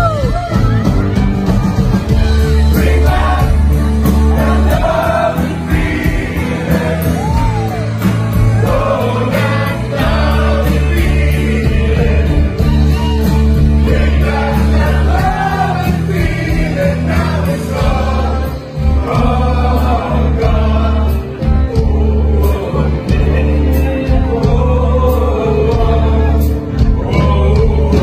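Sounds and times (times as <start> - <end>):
amplified backing music: 0.0 - 28.0
man singing into a microphone: 19.2 - 28.0.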